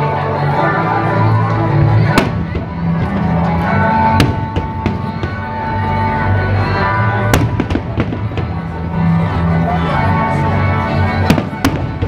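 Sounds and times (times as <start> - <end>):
fireworks bangs: 2.1 - 3.4, 4.0 - 5.7, 7.3 - 8.6, 11.3 - 12.0.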